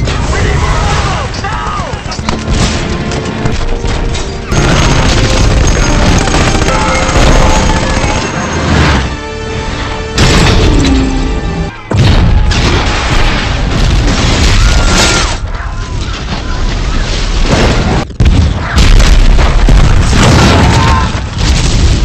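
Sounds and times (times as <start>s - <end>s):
orchestral score: 2.2s - 12.6s
crashing debris: 11.9s - 22.0s
explosions: 11.9s - 22.0s.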